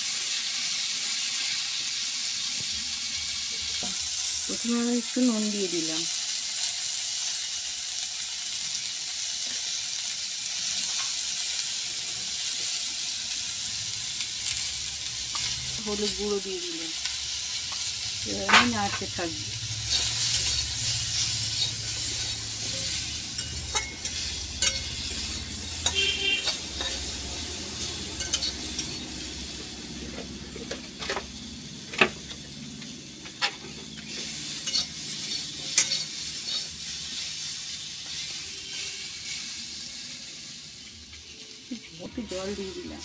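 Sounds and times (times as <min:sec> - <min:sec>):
slices sizzling in hot oil: 0:00.0 - 0:43.0
metal spatula scraping pan: 0:18.4 - 0:29.0, 0:33.4 - 0:37.3.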